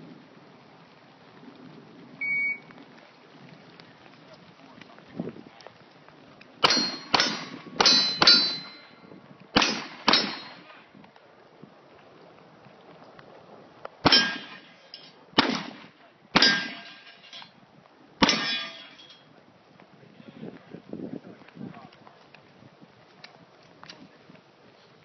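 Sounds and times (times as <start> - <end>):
pistol shots: 6.6 - 8.8, 9.6 - 10.8, 14.0 - 14.7, 15.4 - 17.0, 18.2 - 18.8
bullets ringing off steel target: 6.6 - 9.0, 9.6 - 10.7, 14.1 - 15.8, 16.4 - 17.5, 18.2 - 19.2.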